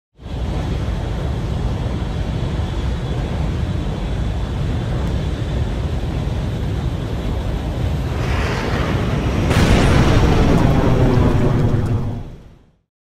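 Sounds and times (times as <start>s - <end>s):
jet engine rumble: 0.2s - 12.7s
engine hiss: 5.5s - 12.2s.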